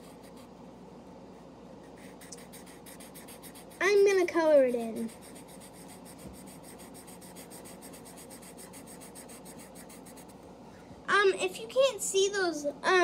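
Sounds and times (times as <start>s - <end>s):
marker rubbing on paper: 0.0s - 0.5s, 1.9s - 10.4s.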